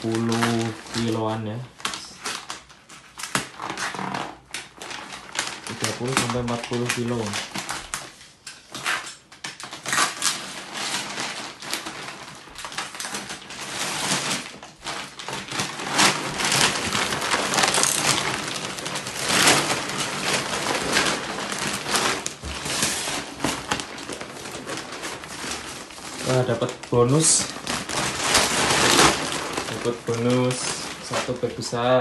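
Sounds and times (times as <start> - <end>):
paper crinkling and tearing: 0.0 - 32.0
plastic wrap rustling: 0.0 - 32.0.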